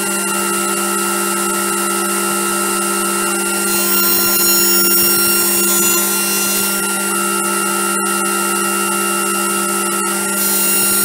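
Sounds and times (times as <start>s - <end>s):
milling machine whine: 0.0s - 11.0s
high whistling: 3.6s - 6.9s.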